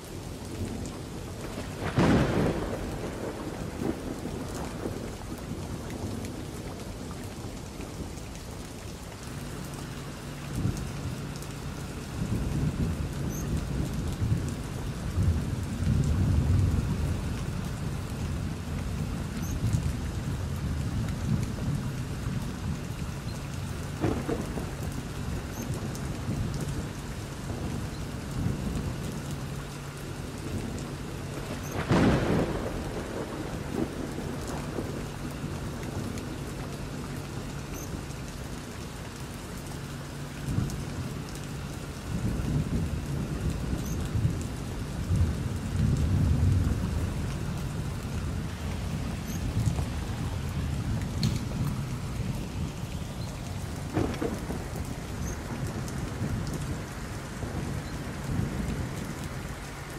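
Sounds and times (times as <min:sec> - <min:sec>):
steady rain: 0:00.0 - 0:59.9
rolling thunder: 0:00.6 - 0:08.2, 0:12.1 - 0:22.8, 0:23.9 - 0:29.2, 0:30.3 - 0:38.0, 0:42.1 - 0:59.9
sharp thunderclap: 0:01.4 - 0:06.6, 0:24.0 - 0:25.6, 0:31.4 - 0:36.3, 0:53.6 - 0:59.2.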